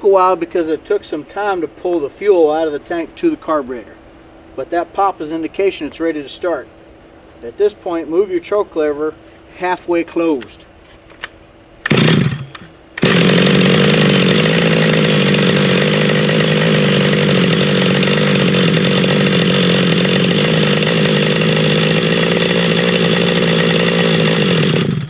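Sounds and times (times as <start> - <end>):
pull-start cord: 11.1 - 25.0
two-stroke engine running buzzily: 11.8 - 25.0.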